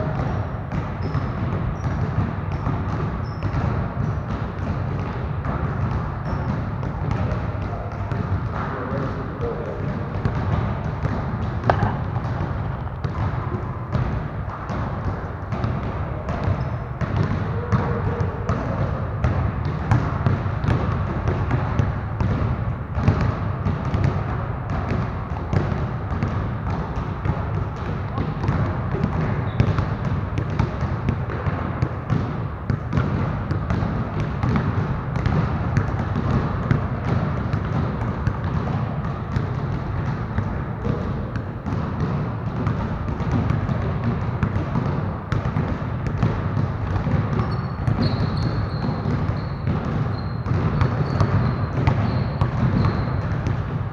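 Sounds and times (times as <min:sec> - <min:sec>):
basketballs bouncing on gym floor: 0:00.0 - 0:53.9.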